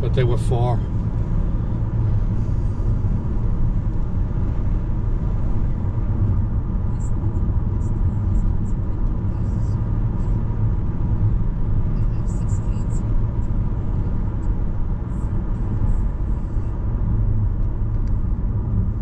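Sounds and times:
car road noise inside cabin: 0.0 - 19.0.

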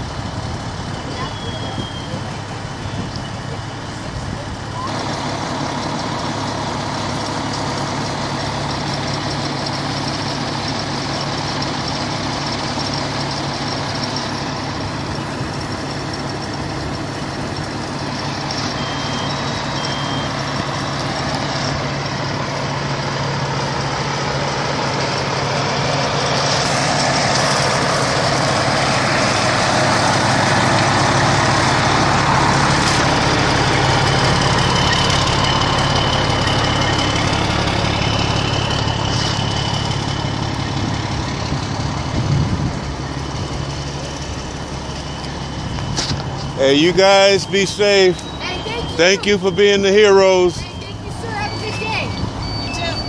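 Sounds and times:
vehicle engines idling: 0.0 - 53.0
faint high tone: 47.2 - 53.0.

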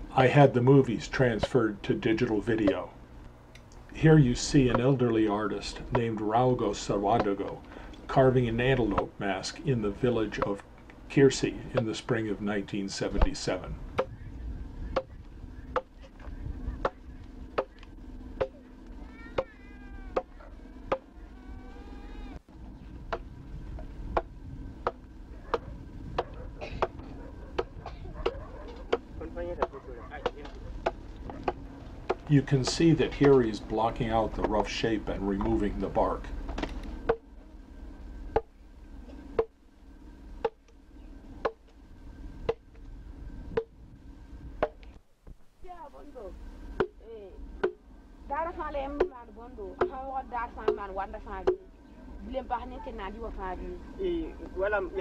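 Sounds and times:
adze chopping wood: 5.9 - 6.2, 7.1 - 7.6, 13.2 - 14.2, 14.9 - 18.7, 19.4 - 21.1, 23.1 - 23.3, 24.1 - 33.4, 38.3 - 38.5, 40.4 - 40.8, 41.4 - 41.8, 42.4 - 42.7, 44.6 - 44.8, 46.8 - 47.0, 47.6 - 47.8
drawn-out animal call: 13.5 - 32.9.

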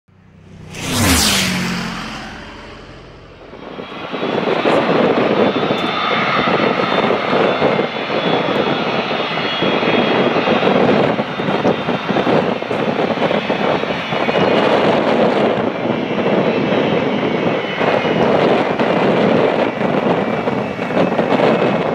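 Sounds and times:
jet airliner engines rushing: 0.2 - 21.9.

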